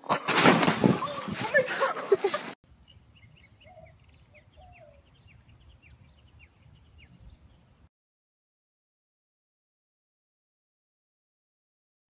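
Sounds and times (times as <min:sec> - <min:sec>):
birds chirping: 0:00.1 - 0:07.9
lower bird calls: 0:02.8 - 0:07.9.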